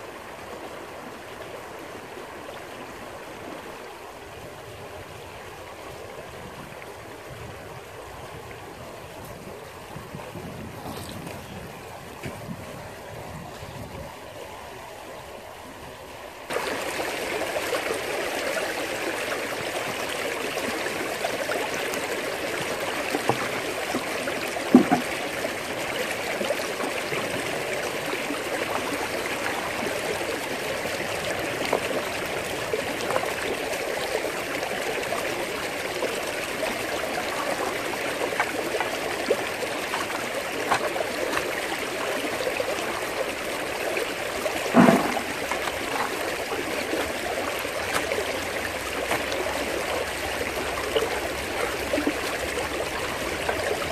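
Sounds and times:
water rushing down a sluice box: 0:00.0 - 0:53.9
short knock: 0:44.8 - 0:45.4.

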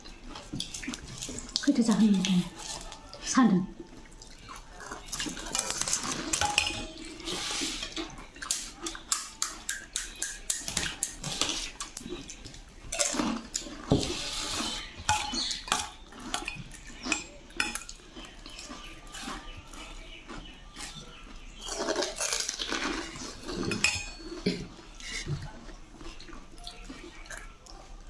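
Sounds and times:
steel spoons clinking on plates: 0:04.4 - 0:19.8, 0:21.6 - 0:25.3.

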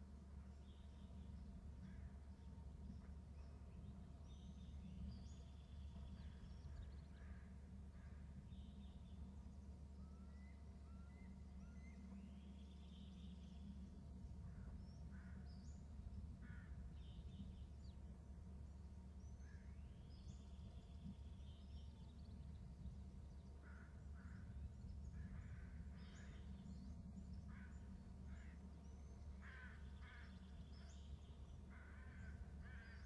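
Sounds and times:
steady low rumble: 0:00.0 - 0:33.0
crows cawing: 0:29.4 - 0:30.4, 0:31.7 - 0:33.0.

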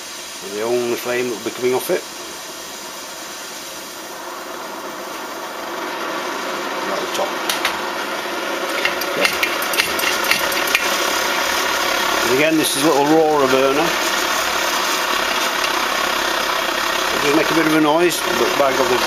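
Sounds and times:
paraffin stove burner roaring: 0:00.0 - 0:19.0
clicks and knocks on stove: 0:08.7 - 0:10.9.

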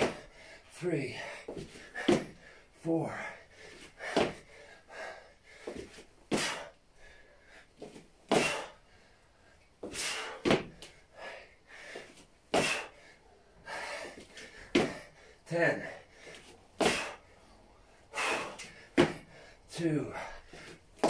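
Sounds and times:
man's forceful exhalations: 0:08.3 - 0:08.8, 0:09.8 - 0:17.3, 0:18.1 - 0:19.5.

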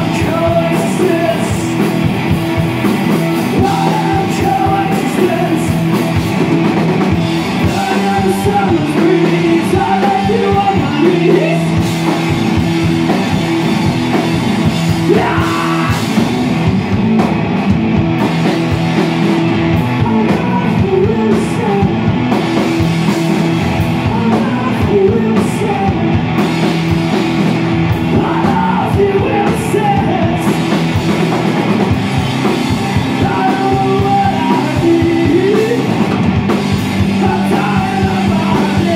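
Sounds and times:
man singing: 0:00.0 - 0:02.1, 0:03.4 - 0:06.0, 0:07.6 - 0:11.9, 0:14.9 - 0:16.2, 0:19.7 - 0:22.1, 0:23.9 - 0:26.2, 0:28.0 - 0:30.8, 0:32.8 - 0:36.2, 0:37.0 - 0:38.9
drum kit: 0:00.0 - 0:38.9
electric guitar: 0:00.0 - 0:38.9.

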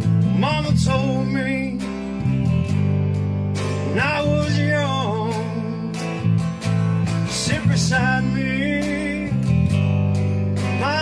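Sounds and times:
man singing: 0:00.0 - 0:02.2, 0:03.8 - 0:06.4, 0:07.1 - 0:09.8, 0:10.6 - 0:11.0
steady bass line: 0:00.0 - 0:11.0
strummed guitar: 0:00.0 - 0:11.0.

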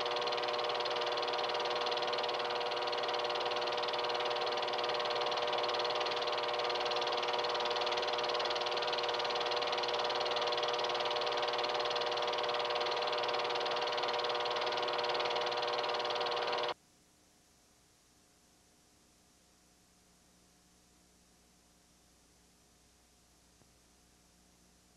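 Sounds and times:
film projector whirring: 0:00.0 - 0:16.8.

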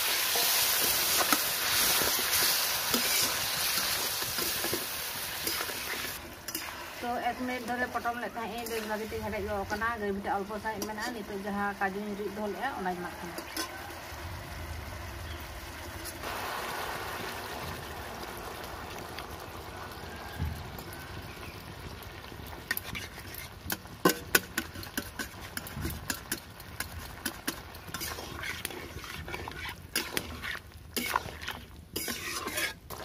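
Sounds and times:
metal spatula scraping a pan: 0:00.0 - 0:11.5, 0:12.6 - 0:13.9, 0:22.7 - 0:33.0
curry simmering and bubbling: 0:00.0 - 0:33.0.

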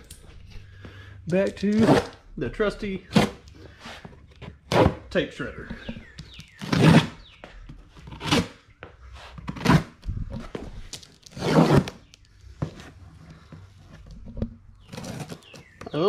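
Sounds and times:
tape tearing in rasping rips: 0:10.9 - 0:12.2.

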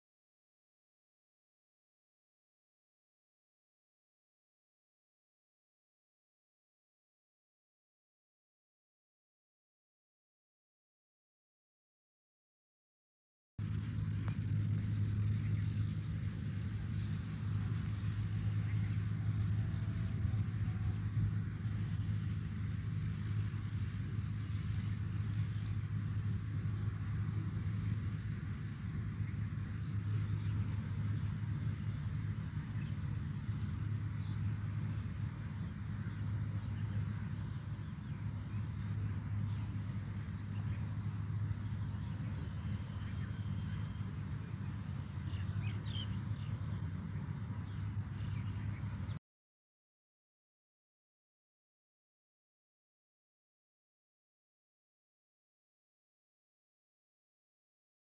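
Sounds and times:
constant low hum: 0:13.6 - 0:49.2
insects trilling: 0:13.6 - 0:49.2.

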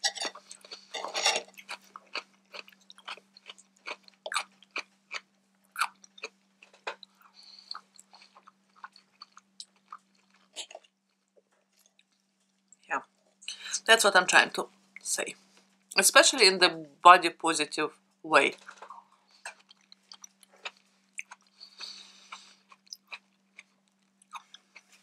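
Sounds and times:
chewing with wet mouth clicks: 0:01.5 - 0:11.0, 0:19.4 - 0:25.0.

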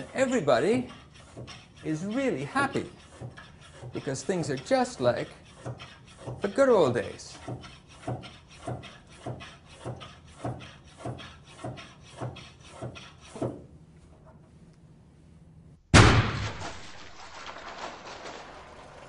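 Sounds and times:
water balloon bursting: 0:16.0 - 0:19.0.

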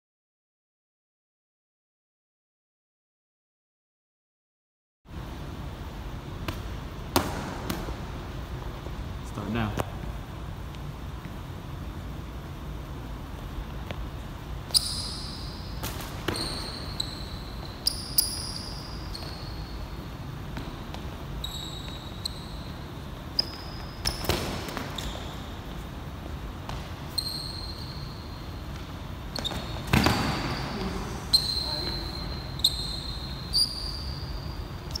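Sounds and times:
sneakers squeaking on gym floor: 0:13.8 - 0:35.0.

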